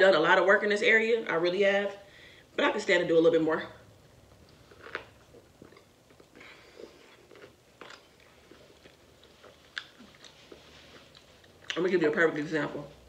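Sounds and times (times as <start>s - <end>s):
chewing food: 4.4s - 12.0s.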